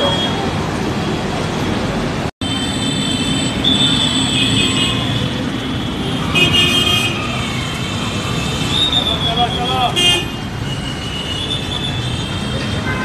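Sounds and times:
traffic engine and road noise: 0.0s - 13.0s
vehicle horns honking: 2.4s - 7.3s, 8.0s - 13.0s.

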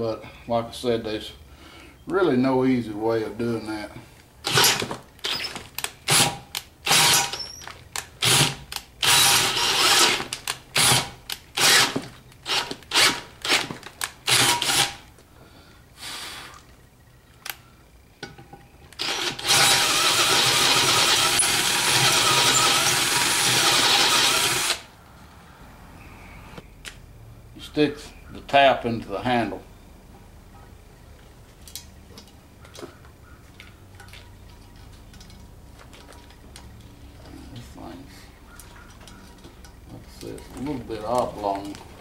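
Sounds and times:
power drill drilling metal: 4.5s - 7.6s, 8.2s - 13.7s, 14.3s - 15.0s, 19.0s - 24.9s.

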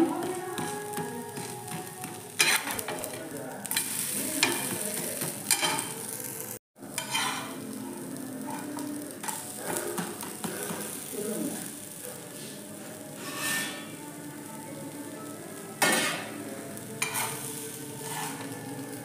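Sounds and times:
flatbread sizzling in oil: 0.1s - 19.0s
steel spatula scraping pan: 2.4s - 2.8s, 7.0s - 7.5s, 13.2s - 13.9s, 17.0s - 18.6s.

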